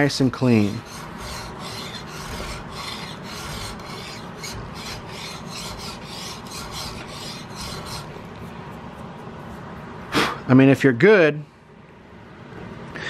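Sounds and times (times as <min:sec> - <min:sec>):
file rasping on steel: 0:00.4 - 0:08.6.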